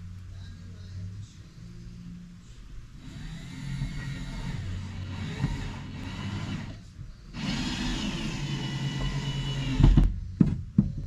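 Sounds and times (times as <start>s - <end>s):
power drill driving a screw: 3.0s - 6.8s, 7.4s - 10.0s.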